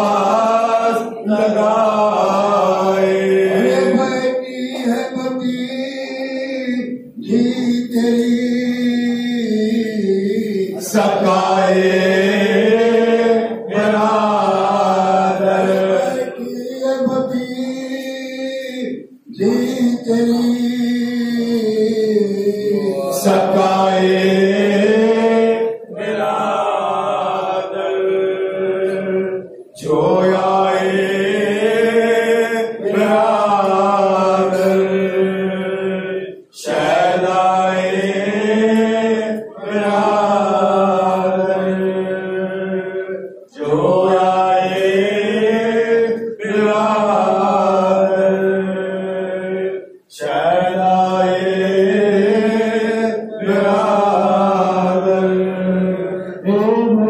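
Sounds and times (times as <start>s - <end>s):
men chanting into microphones: 0.0s - 57.0s.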